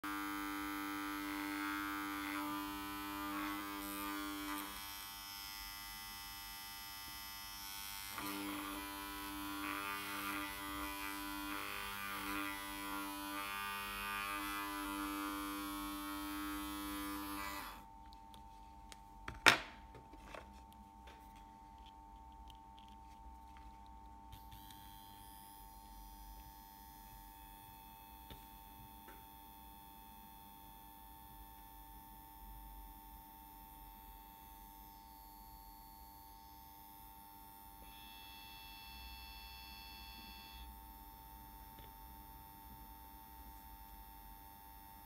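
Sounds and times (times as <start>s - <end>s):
electric motor buzzing: 0.1s - 17.9s, 24.3s - 31.0s, 37.8s - 41.2s.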